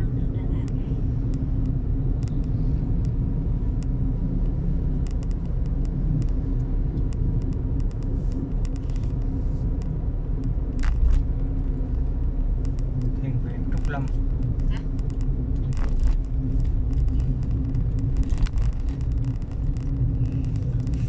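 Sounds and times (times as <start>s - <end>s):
car engine rumble: 0.0s - 21.0s
road noise: 0.0s - 21.0s.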